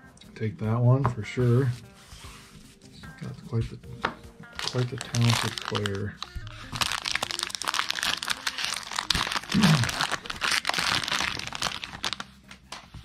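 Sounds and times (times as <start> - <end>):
cards rustling: 4.6 - 13.0
plastic wrapper crinkling: 4.6 - 13.0.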